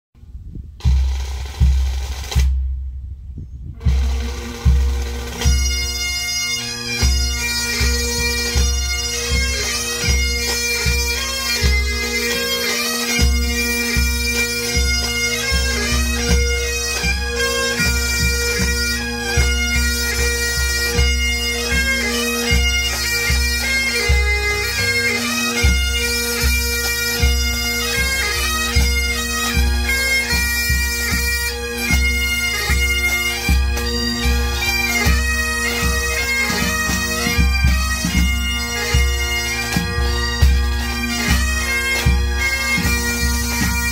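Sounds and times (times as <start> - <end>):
snare and bass drums: 0.6 - 3.1, 3.7 - 5.9
bagpipes playing a tune: 3.8 - 43.9.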